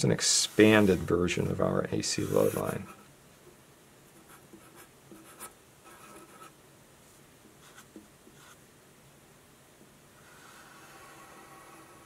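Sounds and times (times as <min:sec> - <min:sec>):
marker scratching on paper: 0:02.2 - 0:03.0, 0:04.2 - 0:06.5, 0:07.6 - 0:08.6.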